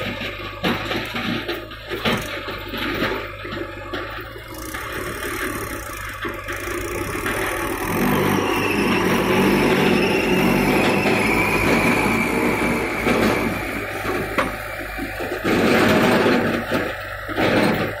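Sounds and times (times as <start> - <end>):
tractor diesel engine under load: 0.0 - 18.0.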